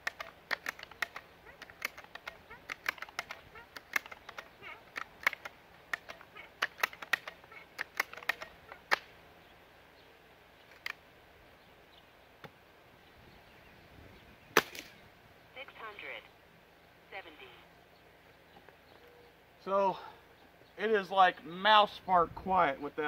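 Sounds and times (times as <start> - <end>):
sharp clicks and taps: 0.0 - 9.1
quiet air rifle shot: 14.5 - 15.0.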